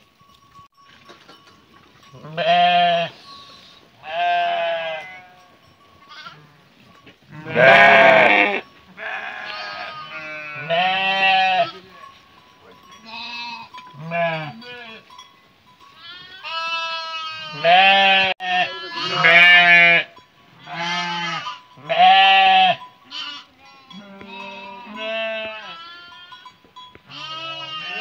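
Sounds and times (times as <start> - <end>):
sheep bleating: 2.2 - 5.5, 6.1 - 6.6, 7.3 - 11.9, 13.0 - 15.1, 16.0 - 26.4, 27.1 - 28.0.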